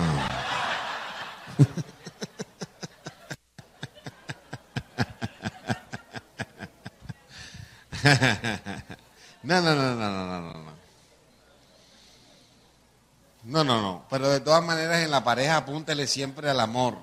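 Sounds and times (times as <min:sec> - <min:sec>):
audience laughter: 0:00.0 - 0:09.1
man chuckling in breathy bursts: 0:01.5 - 0:08.8.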